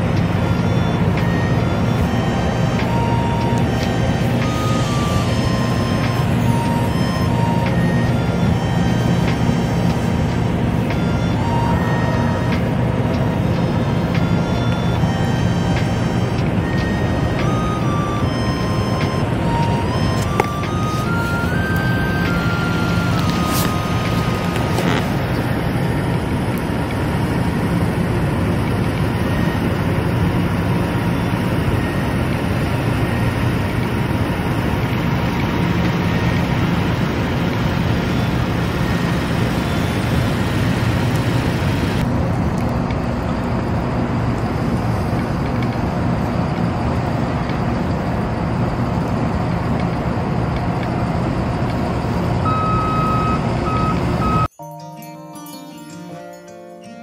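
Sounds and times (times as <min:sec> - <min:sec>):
faint high beeps: 0:00.0 - 0:27.0
large vehicle engine rumbling: 0:00.0 - 0:54.5.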